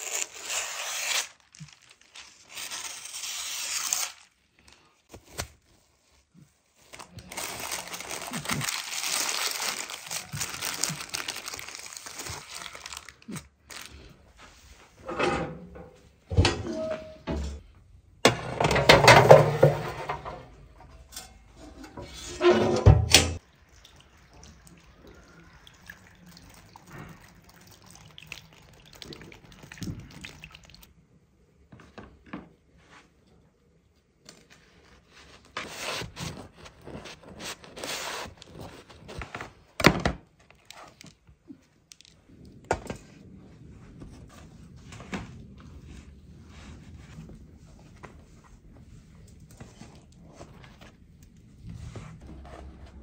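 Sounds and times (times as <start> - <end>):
oven door shutting: 15.1 - 17.6, 21.9 - 23.4.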